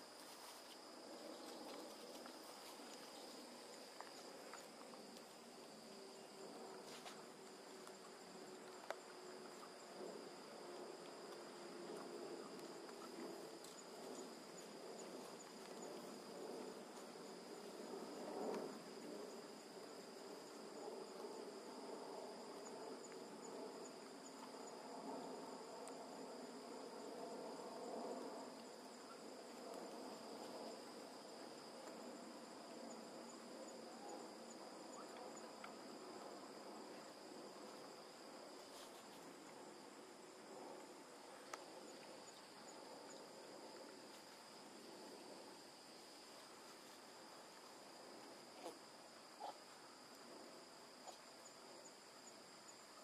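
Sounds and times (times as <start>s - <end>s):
insect chorus trilling: 0.0s - 53.0s.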